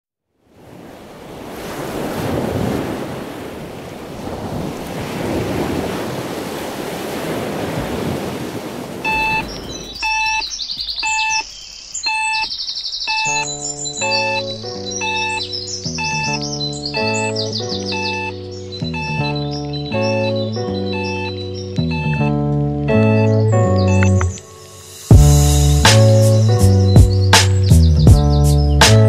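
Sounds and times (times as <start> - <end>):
small waves washing onto a beach: 0.4 - 10.1
bell-like notes with chirping trills: 9.1 - 28.6.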